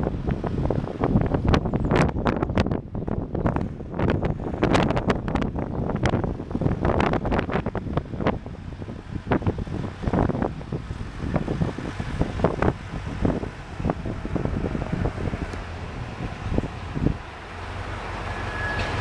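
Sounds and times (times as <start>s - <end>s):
gusty wind buffeting microphone: 0.0s - 19.0s.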